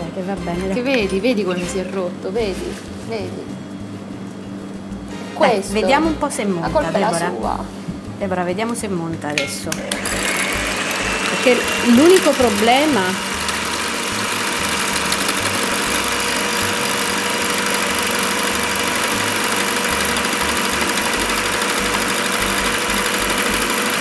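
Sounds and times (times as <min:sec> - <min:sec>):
electric hand mixer whipping: 0:09.7 - 0:24.0.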